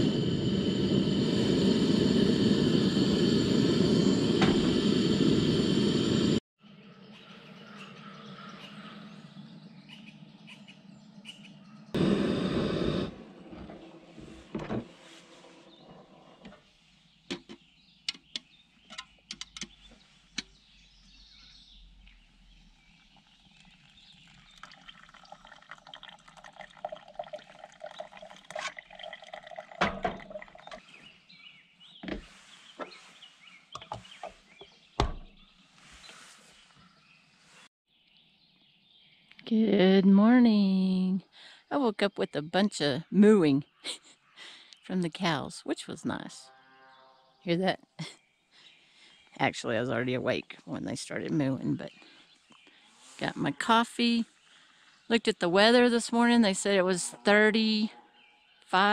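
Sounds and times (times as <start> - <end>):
hot water pouring into coffee cone: 22.9 - 30.8.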